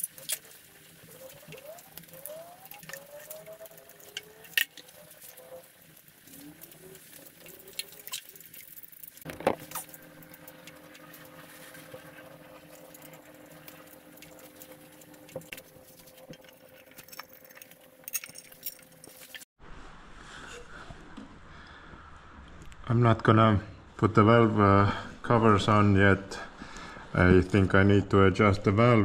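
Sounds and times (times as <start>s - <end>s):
metal tools clicking and knocking: 16.3s - 19.4s.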